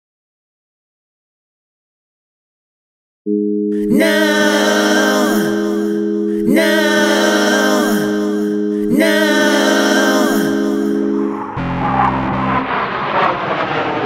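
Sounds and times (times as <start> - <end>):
steady held chord: 3.3 - 12.6
wordless sung phrase: 3.8 - 11.4.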